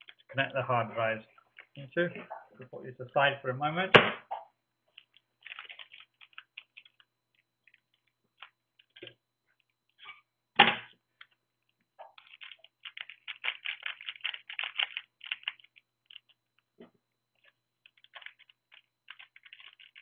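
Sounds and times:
plastic bag crinkling: 4.9 - 10.0, 12.0 - 16.7, 17.4 - 20.0.

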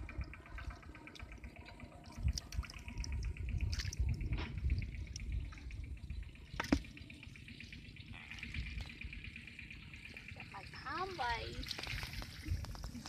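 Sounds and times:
dripping: 10.7 - 13.0.

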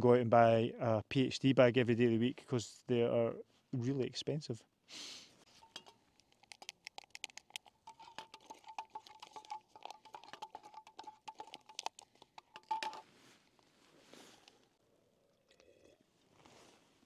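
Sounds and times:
metal clink: 5.5 - 6.0
dry food pattering into metal pot: 5.5 - 13.6.

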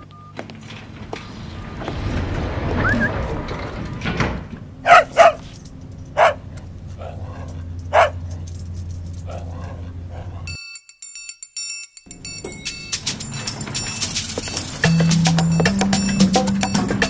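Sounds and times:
low steady hum: 0.0 - 10.5
dog-like barks: 4.8 - 5.5, 6.2 - 8.3, 9.2 - 10.5.

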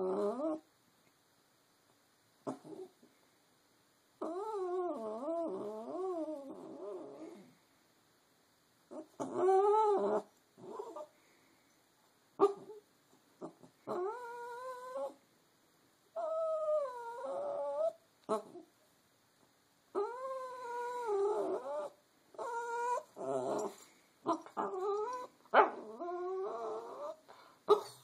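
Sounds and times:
puppy whining: 0.0 - 0.7, 2.5 - 2.9, 4.2 - 7.5, 8.9 - 11.1, 13.4 - 15.2, 16.2 - 18.7, 19.9 - 28.0.

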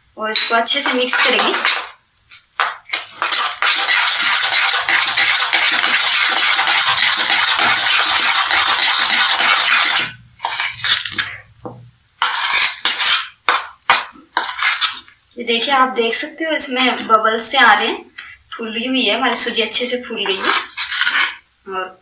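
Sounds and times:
spoon beating batter in a bowl: 0.3 - 15.2.

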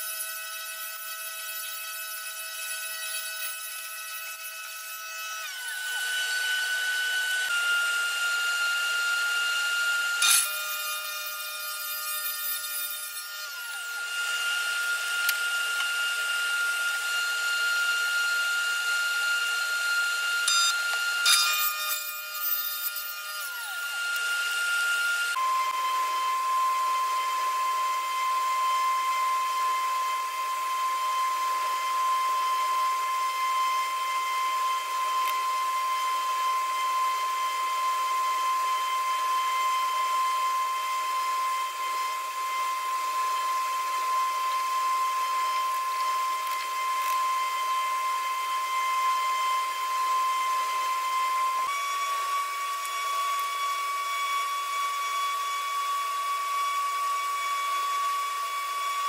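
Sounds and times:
power tool whine: 0.0 - 59.0.

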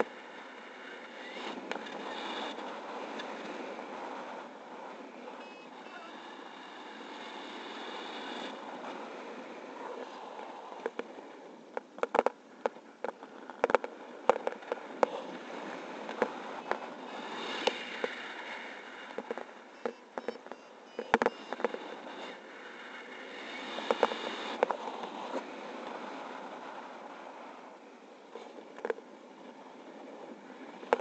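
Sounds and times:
wind rushing over camera: 0.0 - 31.0
sharp cracks and pops: 11.7 - 15.2.

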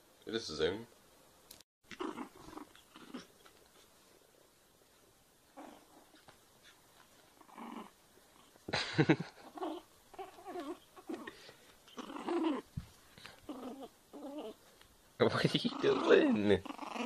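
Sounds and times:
small dog whining and yelping: 1.9 - 3.4, 9.5 - 12.8, 13.4 - 14.6.

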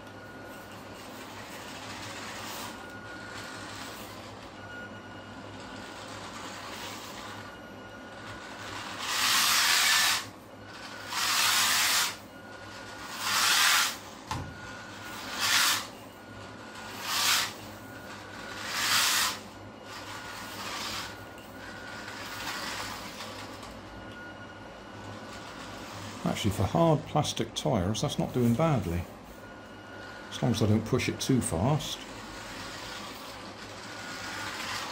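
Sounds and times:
electric motor gears whirring: 0.0 - 24.3, 25.0 - 27.0, 29.6 - 34.9
plastic wheels rolling on floor: 32.0 - 34.9.

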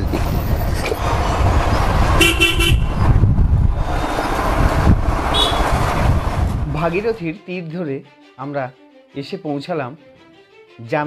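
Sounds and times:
wind noise: 0.0 - 7.2
motorcycle engine: 0.8 - 6.7
vehicle horn tooting: 2.2 - 3.0, 5.3 - 5.8.

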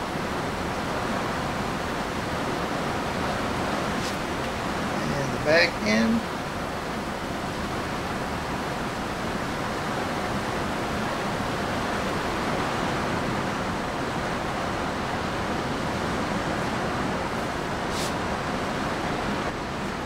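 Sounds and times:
rushing hiss: 3.9 - 6.2, 17.8 - 18.4.

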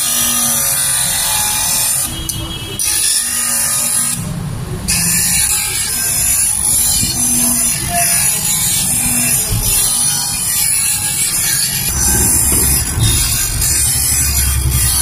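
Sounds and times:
motor buzzing: 4.9 - 15.0.

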